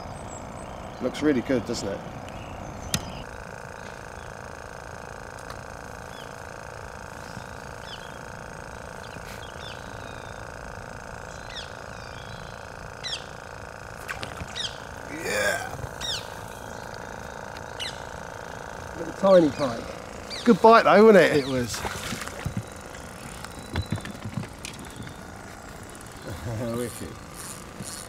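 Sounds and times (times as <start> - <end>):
small birds chirping: 0.0 - 4.7, 5.7 - 28.0
steady low hum: 0.0 - 28.0.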